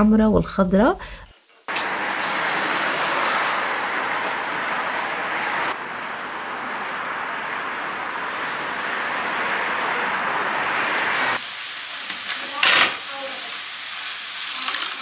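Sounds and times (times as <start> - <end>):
distant city traffic hiss: 1.0 - 15.0
sizzling in a frying pan: 11.2 - 15.0.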